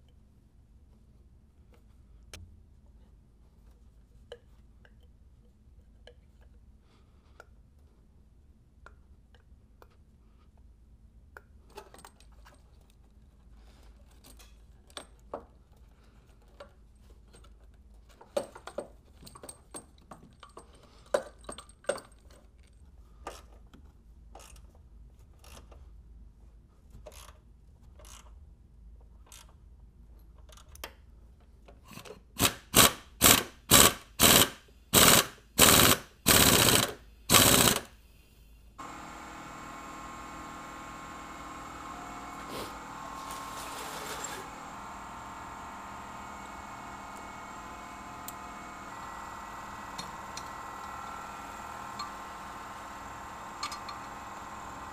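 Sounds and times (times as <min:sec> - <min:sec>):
hand tools clicking and knocking: 0:31.9 - 0:37.9, 0:53.6 - 0:54.2
loud ratchet strokes: 0:32.4 - 0:37.9, 0:38.8 - 0:54.9.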